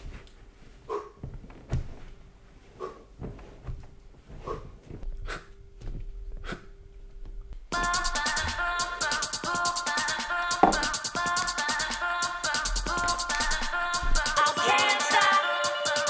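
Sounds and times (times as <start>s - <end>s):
faint steady hum: 0.0s - 14.4s
knocks and thuds: 1.2s - 2.1s.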